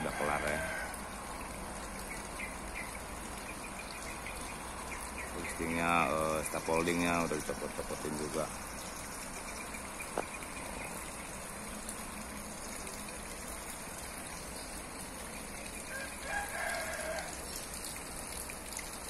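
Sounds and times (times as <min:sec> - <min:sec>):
rooster crowing: 0:00.0 - 0:01.0, 0:15.9 - 0:17.5.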